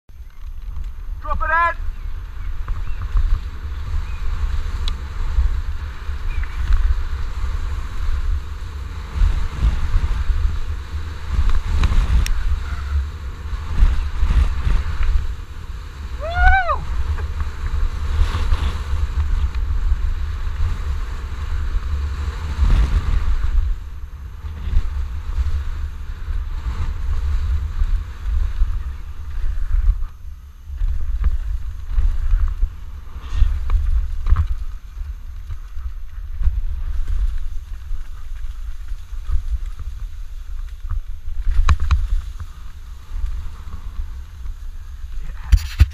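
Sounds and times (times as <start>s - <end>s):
bike rattling over dirt trail: 0.1s - 45.9s
wind buffeting microphone: 0.2s - 45.9s
high rising and falling call: 16.2s - 16.9s.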